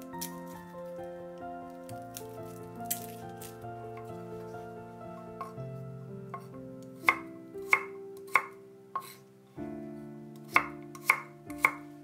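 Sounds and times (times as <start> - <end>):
soft piano music: 0.0 - 12.0
knife chopping on wooden board: 6.4 - 9.2, 10.4 - 11.8.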